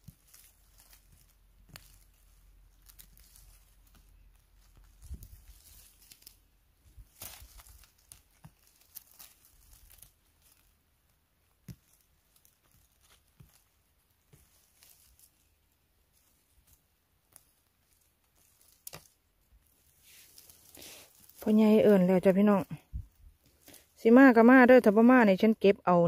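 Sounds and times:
twigs snapping: 0.0s - 10.8s, 11.4s - 21.6s
rustling undergrowth: 0.0s - 25.4s.

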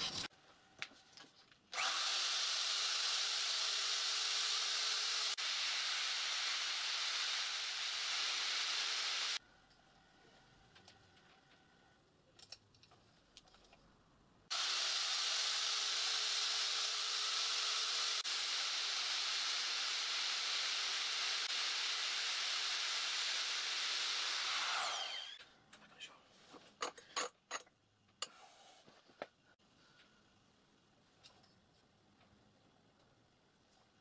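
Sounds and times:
machine winding down whine: 24.2s - 25.4s.

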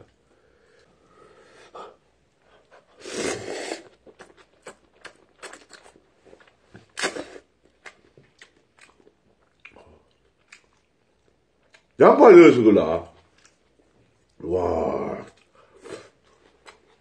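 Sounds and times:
man slurping noodles: 3.0s - 4.0s
wet chewing: 3.8s - 12.0s.

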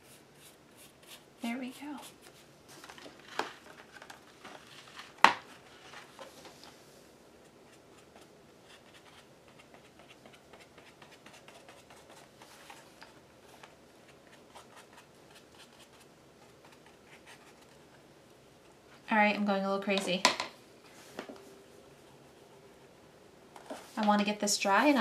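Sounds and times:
paintbrush brushing on paper: 0.0s - 2.5s.

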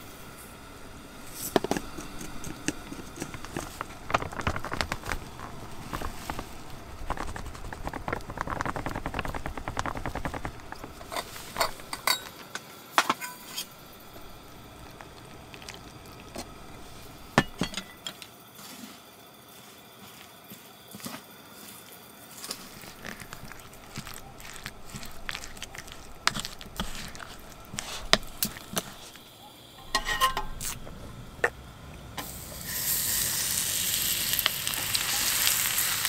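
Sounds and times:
chopsticks stirring in wooden bowl: 1.4s - 12.1s, 20.0s - 30.8s.

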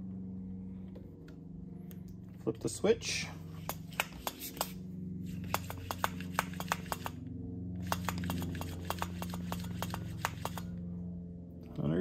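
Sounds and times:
electric air pump humming: 3.4s - 10.8s.

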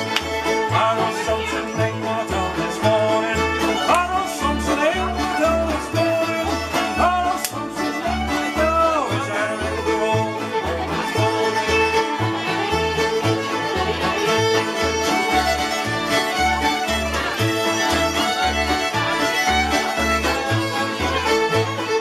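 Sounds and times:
acoustic string band playing: 0.0s - 22.0s
banjo: 0.0s - 22.0s
fiddles playing melody: 0.0s - 22.0s
plucked double bass: 0.0s - 22.0s
strummed guitars: 0.0s - 22.0s.

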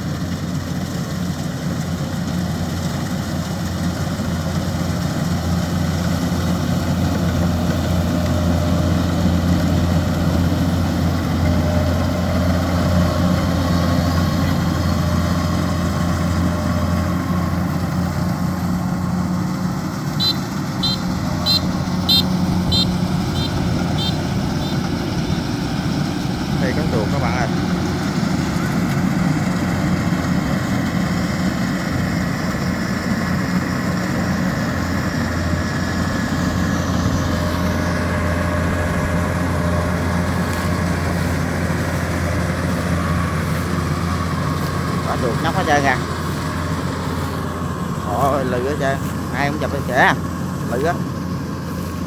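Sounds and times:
combine harvester engine drone: 0.0s - 52.0s
short high chirps: 20.1s - 24.8s.

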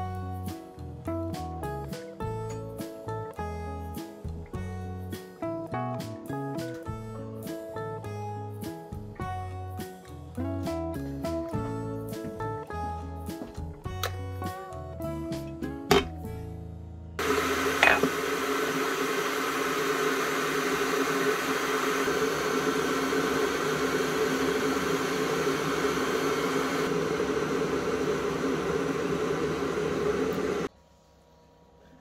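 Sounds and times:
kettle rushing rumble: 17.2s - 30.7s.

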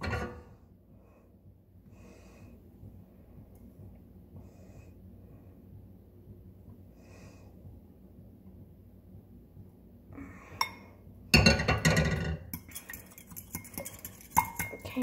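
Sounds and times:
fork clinking against glass bowl: 12.6s - 14.8s.

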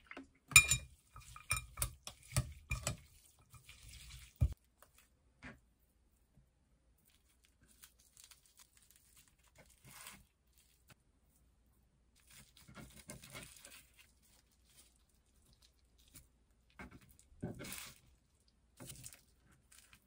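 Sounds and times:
dried seaweed sheets crinkling: 7.0s - 11.4s, 12.2s - 20.0s.

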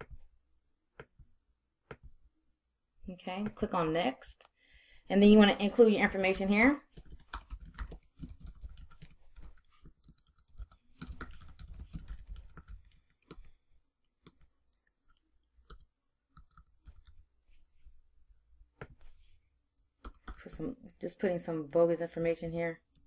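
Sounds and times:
faint keyboard typing: 6.1s - 17.7s, 19.8s - 23.0s.

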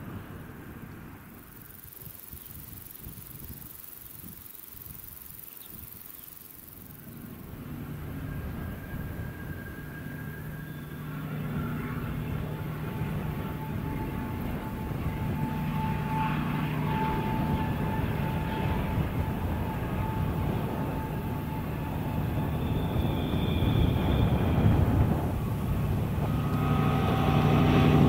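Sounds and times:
high steady whine: 0.0s - 28.0s
locomotive engine drone: 0.0s - 28.0s.

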